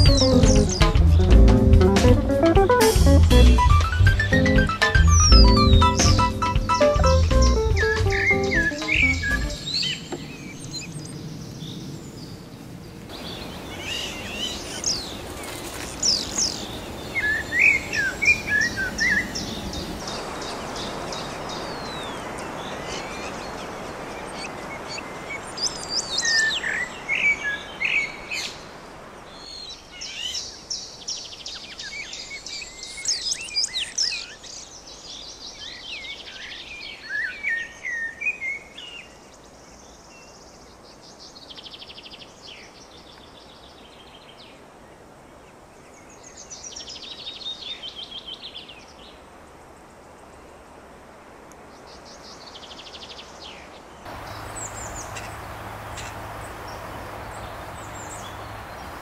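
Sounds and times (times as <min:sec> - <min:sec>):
birds chirping and trilling: 0:00.0 - 0:02.8, 0:03.4 - 0:44.6, 0:51.8 - 0:59.0
steady hiss: 0:54.1 - 0:59.0.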